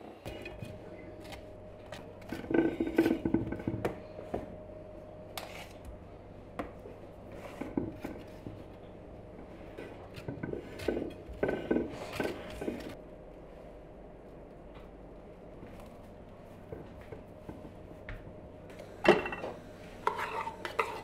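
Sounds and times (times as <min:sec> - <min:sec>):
faint steady hum: 0:00.0 - 0:21.0
dishes clinking and scraping: 0:02.2 - 0:04.5, 0:07.3 - 0:13.0, 0:19.0 - 0:21.0.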